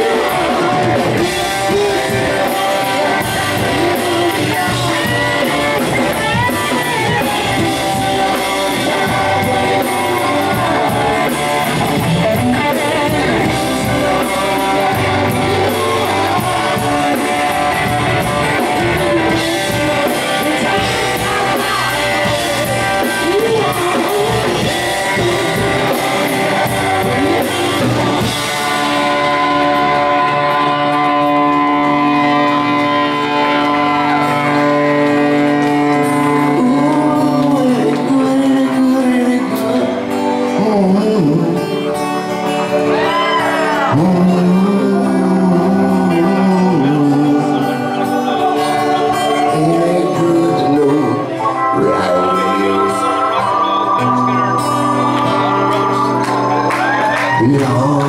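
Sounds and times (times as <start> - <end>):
drums and cymbals: 0.0 - 30.0
man singing: 0.0 - 30.7, 34.8 - 58.0
held guitar chords: 0.0 - 58.0
live rock band playing: 0.0 - 58.0.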